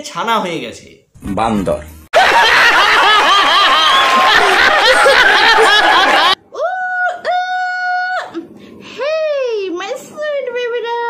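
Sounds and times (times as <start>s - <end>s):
studio audience laughing: 2.2s - 6.4s
clapping: 3.7s - 6.4s.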